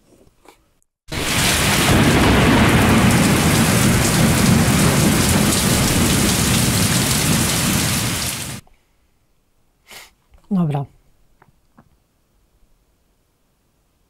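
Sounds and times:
dense hiss of rain: 1.1 - 8.6
low thunder rumble: 1.1 - 8.6.

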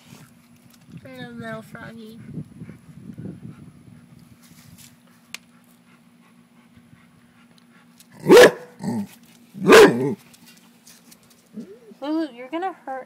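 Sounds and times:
dog barking: 8.2 - 9.0, 9.6 - 10.2.

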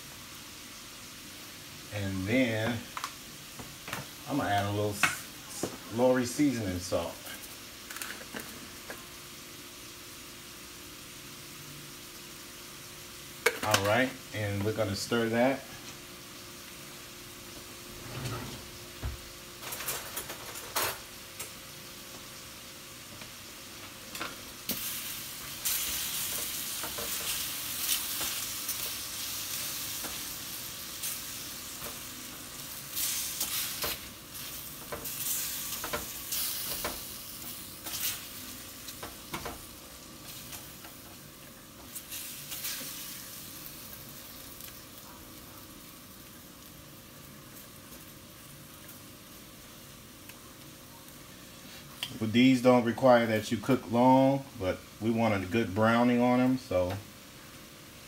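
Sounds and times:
shrimp sizzling in oil: 0.0 - 17.9, 18.7 - 58.0.

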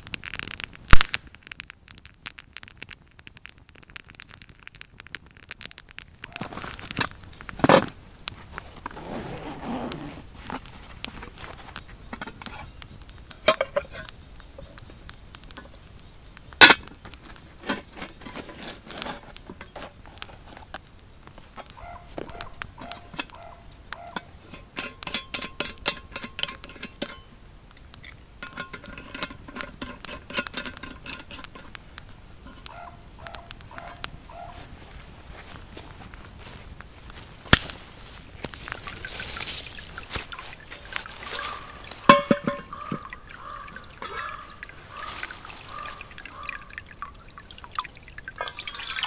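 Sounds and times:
metal pot and lid clinking: 12.1 - 14.1, 22.8 - 27.3, 28.0 - 31.7, 39.5 - 46.9, 48.3 - 49.0
metal ringing: 40.6 - 44.7.

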